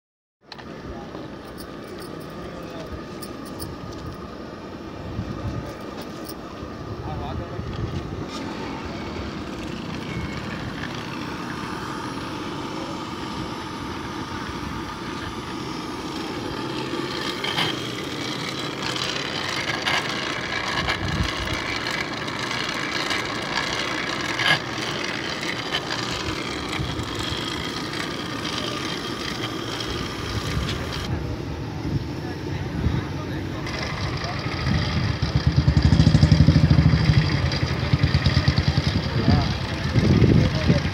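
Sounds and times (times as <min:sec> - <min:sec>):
hand-cranked blower whirring: 0:00.5 - 0:31.1, 0:33.4 - 0:40.9.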